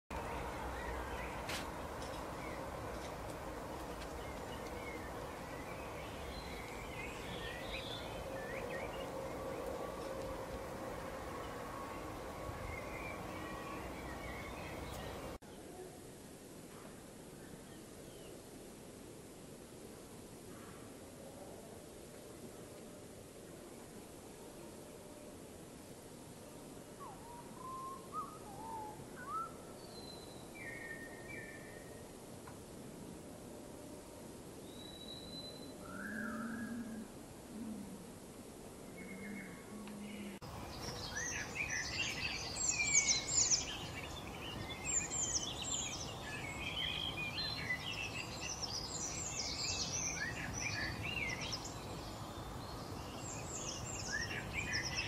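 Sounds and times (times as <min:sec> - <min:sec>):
songbirds chirping: 0:00.1 - 0:16.2, 0:19.4 - 0:55.0
faint hum: 0:00.1 - 0:55.0
steady background hiss: 0:00.1 - 0:55.0
songbird whistling: 0:27.0 - 0:31.8.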